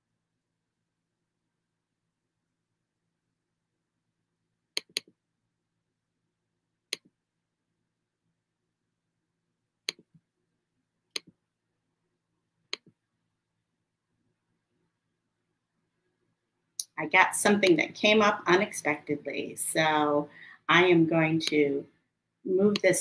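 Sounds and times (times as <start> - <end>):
computer mouse clicking: 4.8 - 5.1, 11.1 - 11.4, 12.7 - 13.0.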